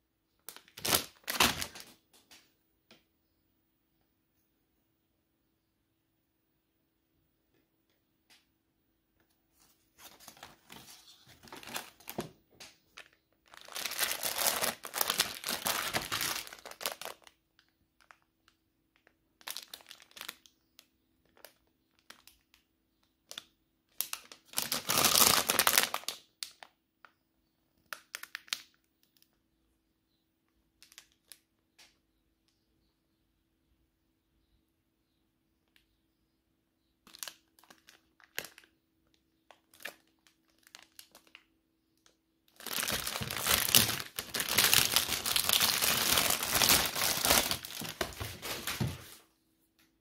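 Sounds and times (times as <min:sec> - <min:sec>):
packaging crinkling: 0:00.5 - 0:02.3, 0:09.6 - 0:18.2, 0:19.0 - 0:20.5, 0:24.0 - 0:26.2, 0:37.1 - 0:38.7, 0:39.5 - 0:41.4, 0:42.5 - 0:49.2.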